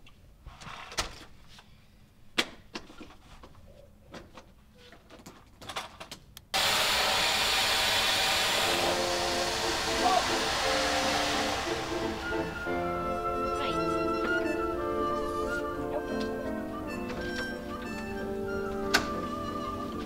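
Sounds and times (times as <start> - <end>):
vacuum cleaner running: 6.6 - 15.6.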